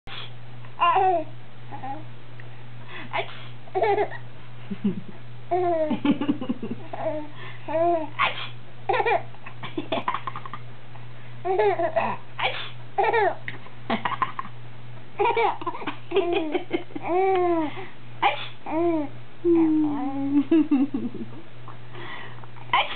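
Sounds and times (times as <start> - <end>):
baby giggling: 3.2 - 4.2, 6.8 - 10.6, 11.4 - 12.2, 13.0 - 14.5, 15.2 - 17.7.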